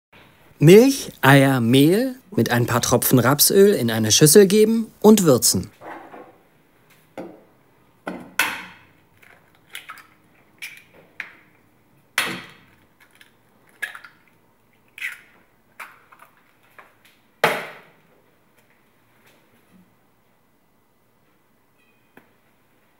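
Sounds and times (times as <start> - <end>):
eggshells cracking on bowl: 9.1 - 11.4, 12.4 - 16.9.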